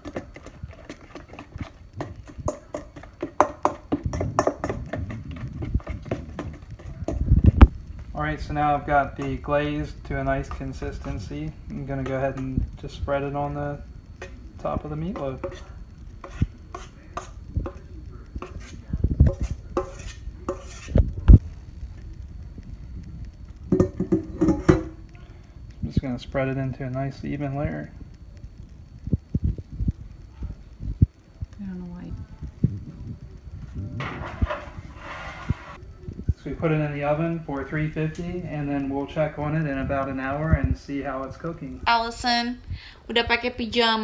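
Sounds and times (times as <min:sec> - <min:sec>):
spoon knocking on bowl: 0:00.0 - 0:07.3, 0:23.7 - 0:25.0
utensil scraping metal bowl: 0:00.0 - 0:07.4, 0:14.2 - 0:21.0, 0:34.0 - 0:35.8
metal spoon scraping a bowl: 0:15.2 - 0:21.0, 0:34.0 - 0:35.8.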